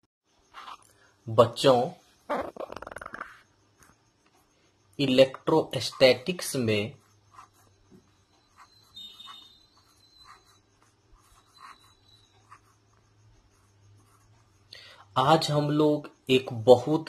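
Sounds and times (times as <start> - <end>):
pen scratching on paper: 0.6 - 0.8, 5.7 - 14.7.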